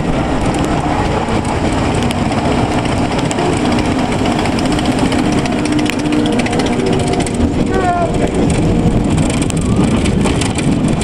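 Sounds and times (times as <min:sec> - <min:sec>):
roller coaster wheels rumbling: 0:00.0 - 0:11.0
wind noise on microphone: 0:00.0 - 0:11.0.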